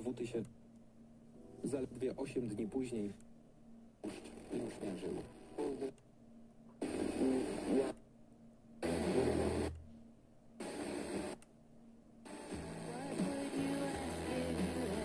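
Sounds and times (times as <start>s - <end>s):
radio station audio snatches: 4.0s - 5.9s, 6.8s - 8.0s, 8.8s - 9.8s, 10.6s - 11.4s, 12.3s - 15.0s
radio hiss: 4.0s - 6.0s, 6.8s - 8.0s, 8.8s - 9.7s, 10.6s - 11.4s, 12.3s - 15.0s.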